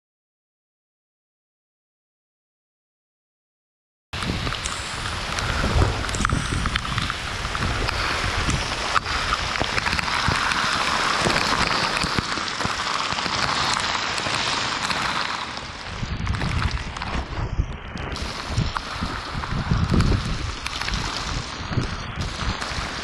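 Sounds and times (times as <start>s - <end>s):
wind buffeting microphone: 4.2s - 14.8s, 15.6s - 23.0s
heavy rain: 4.2s - 23.0s
raindrops tapping microphone: 4.2s - 23.0s.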